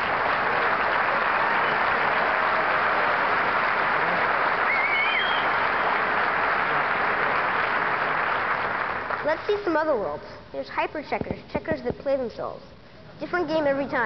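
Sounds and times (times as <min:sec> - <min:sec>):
large audience applauding: 0:00.0 - 0:09.8
high whistle: 0:04.6 - 0:06.1.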